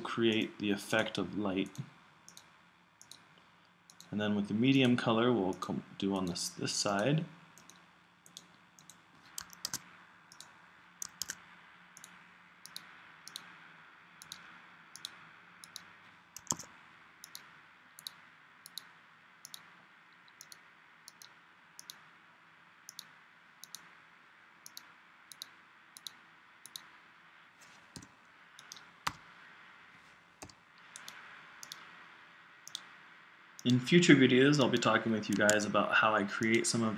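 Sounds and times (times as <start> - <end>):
faint room hiss: 0.0 - 36.9
computer mouse clicking: 1.6 - 4.1, 7.6 - 11.4, 12.0 - 13.5, 14.2 - 22.0, 22.9 - 23.9, 24.6 - 26.9, 27.9 - 29.3, 30.4 - 31.9, 32.6 - 32.9, 33.6 - 33.8, 34.6 - 35.7.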